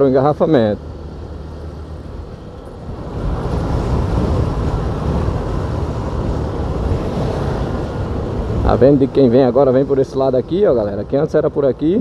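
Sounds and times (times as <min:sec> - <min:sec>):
wind noise on microphone: 0:02.8 - 0:08.8.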